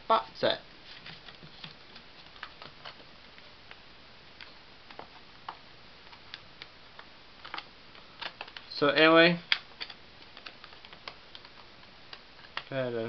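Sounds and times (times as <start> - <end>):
paper card rustling and clicking: 7.4 - 8.7.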